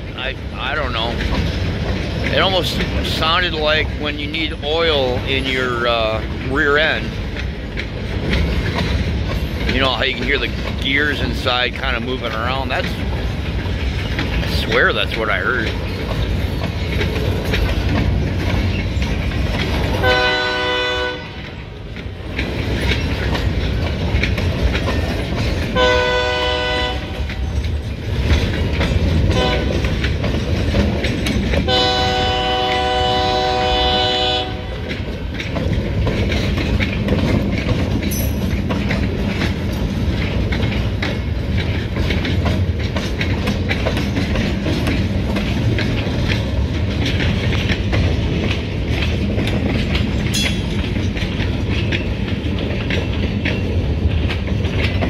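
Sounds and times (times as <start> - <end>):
freight train wheels rumbling: 0.0 - 55.0
locomotive horn blasts: 20.0 - 21.4, 25.8 - 27.3, 29.3 - 29.8, 31.7 - 34.8.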